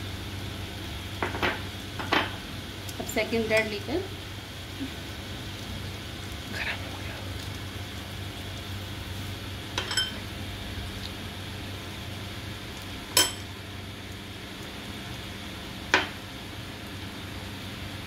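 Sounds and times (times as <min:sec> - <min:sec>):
steady low hum: 0:00.0 - 0:18.0
spoon clinking on metal plate: 0:09.8 - 0:10.2, 0:13.2 - 0:13.5.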